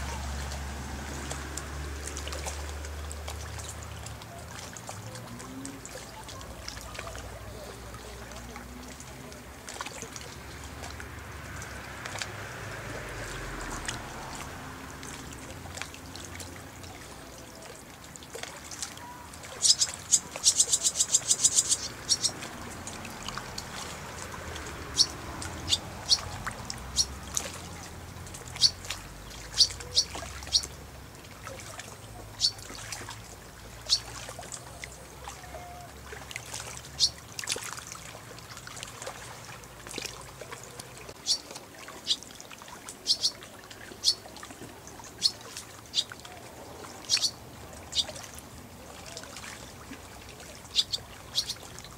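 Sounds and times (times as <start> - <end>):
swallows chirping: 18.7 - 30.8, 31.6 - 32.9, 33.8 - 34.2, 37.0 - 37.2, 41.2 - 42.2, 43.0 - 44.3, 45.1 - 46.3, 46.9 - 48.2, 50.6 - 51.8.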